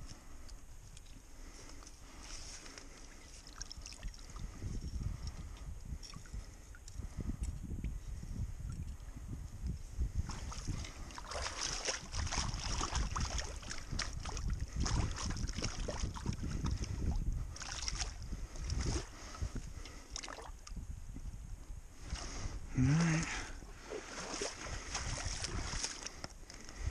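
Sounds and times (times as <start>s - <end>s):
wind rumble on microphone: 0.0s - 26.9s
hands splashing in water: 10.3s - 16.3s.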